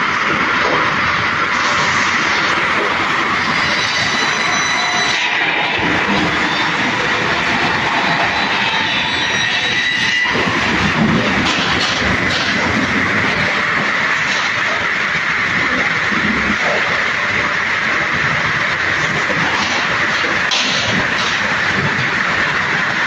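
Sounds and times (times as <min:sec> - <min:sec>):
saw motors and conveyors din: 0:00.0 - 0:23.0.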